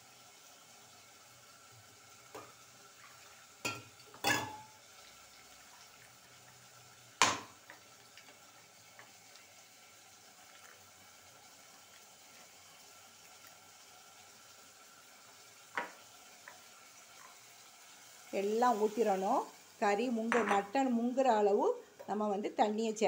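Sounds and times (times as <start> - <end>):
kitchen utensils knocking: 3.7 - 4.7.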